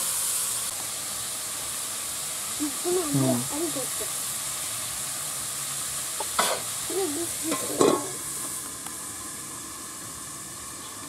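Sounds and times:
vegetables sizzling in oil: 0.0s - 11.0s
metal lid clanking on pan: 7.5s - 8.2s.

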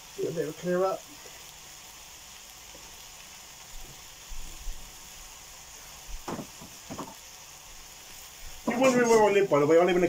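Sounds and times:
food sizzling in a pan: 0.0s - 10.0s
soft knocks and clatters: 6.2s - 7.2s.

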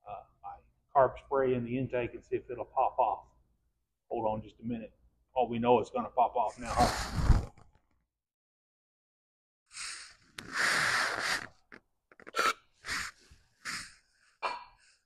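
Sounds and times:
aerosol spray puffs: 9.7s - 11.6s.

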